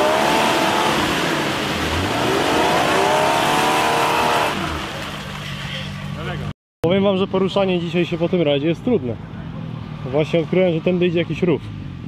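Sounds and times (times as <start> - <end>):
suv engine revving: 0.0 - 5.5.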